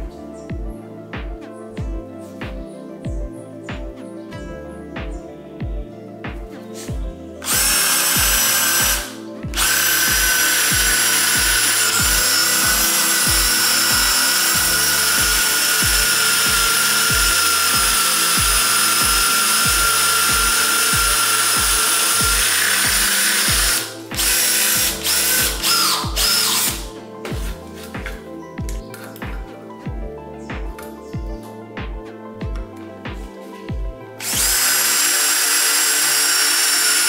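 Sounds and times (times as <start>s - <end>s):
background music with steady beat: 0.0s - 37.0s
cordless drill whining: 7.4s - 27.9s, 34.2s - 37.0s.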